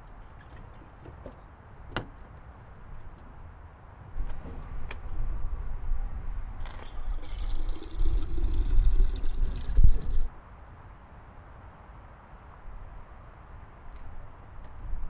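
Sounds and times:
water pouring into bottle: 6.6 - 10.3.

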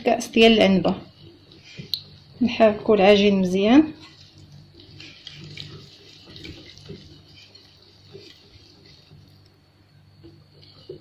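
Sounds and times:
faint steady hum: 0.0 - 11.0
whisk swishing in batter: 3.5 - 11.0.

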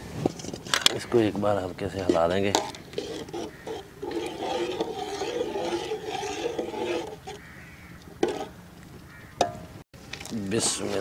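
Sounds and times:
spatula stirring rice in pot: 1.4 - 7.6, 8.2 - 8.6.

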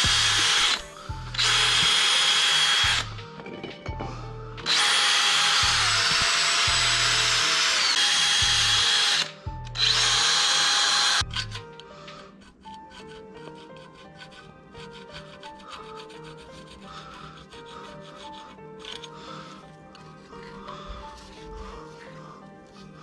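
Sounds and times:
cordless drill whining: 0.0 - 3.2, 4.6 - 11.8.

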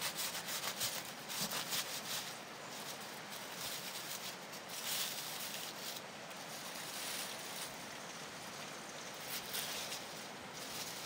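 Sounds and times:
aluminium foil crinkling: 0.0 - 11.0
background hiss: 0.0 - 11.0.

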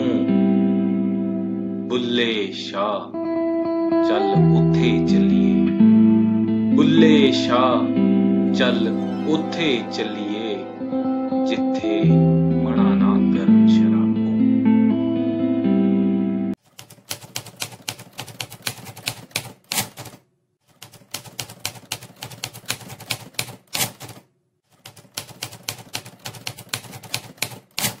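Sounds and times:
guitar music: 0.0 - 16.6
typewriter keys clacking: 16.6 - 28.0.

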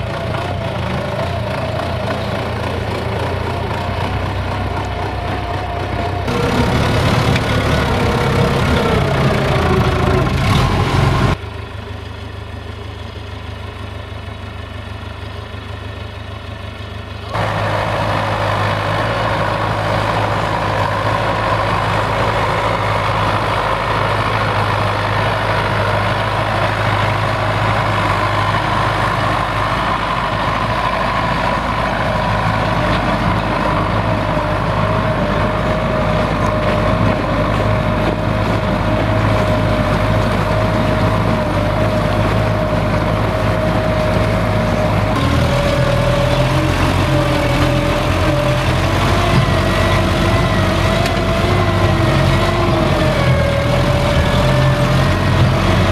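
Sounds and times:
tractor diesel engine under load: 0.0 - 55.9.

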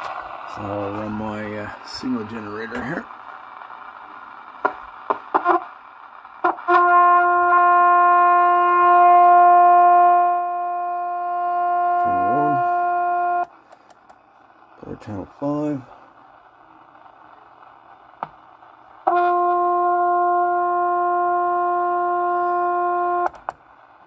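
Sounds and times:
buzzy test tone: 0.0 - 13.5, 16.6 - 23.6
radio receiver hiss: 0.0 - 24.0
radio clicks: 4.6 - 5.7, 13.4 - 14.3, 17.9 - 18.7, 23.2 - 23.6.

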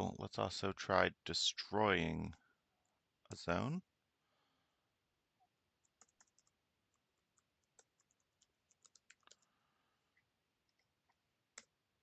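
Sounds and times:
keyboard typing: 5.8 - 9.5.

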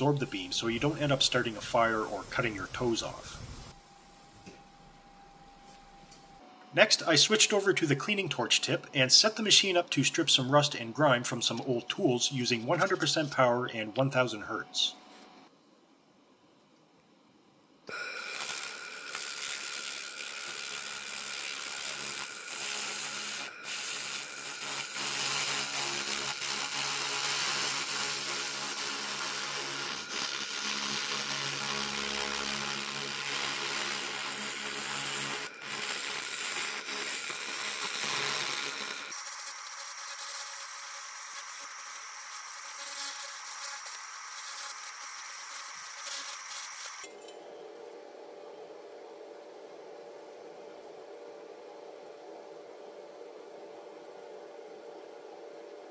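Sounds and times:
laser crackling hiss: 0.0 - 4.5, 17.9 - 47.1
low hum: 47.1 - 55.9.

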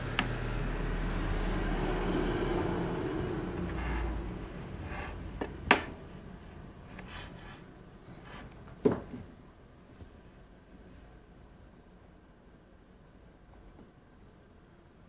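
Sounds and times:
faint rubbing: 3.5 - 8.6.

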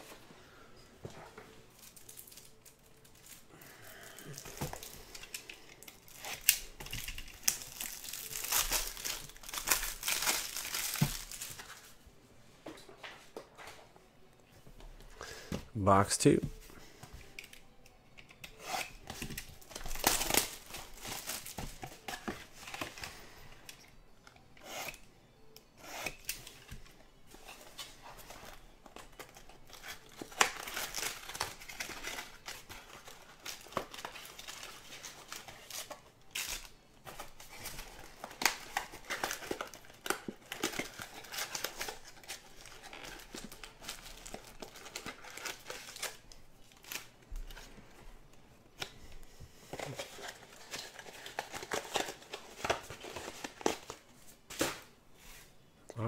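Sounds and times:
crinkling and rustling: 0.0 - 12.0, 26.2 - 55.6
plastic wrap ripping: 5.8 - 11.8, 19.6 - 22.1, 29.3 - 47.2.

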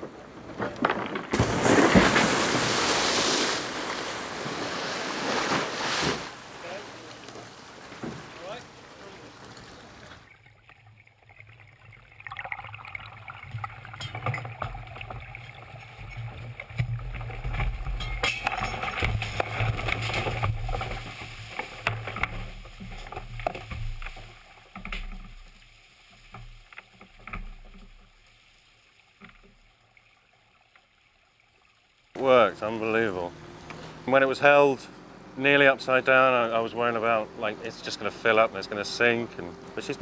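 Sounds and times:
knocks and clatters: 0.4 - 2.2, 13.5 - 28.3
seawater rushing in: 1.4 - 17.9.

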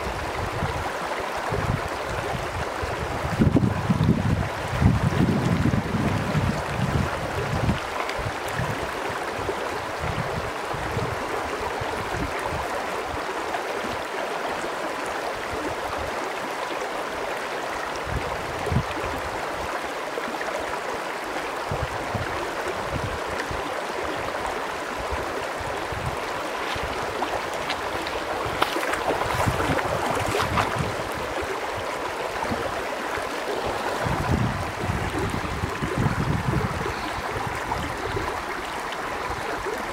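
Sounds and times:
wind buffeting microphone: 0.0 - 12.7, 25.0 - 32.8, 33.5 - 38.4
creek flowing over stones: 0.0 - 39.9.

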